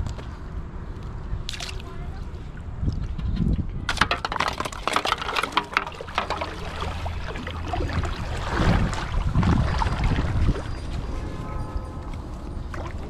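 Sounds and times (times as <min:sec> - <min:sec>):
water sloshing and splashing: 0:01.4 - 0:03.3, 0:03.9 - 0:13.0
plastic bottle clicking and crackling: 0:03.9 - 0:06.6.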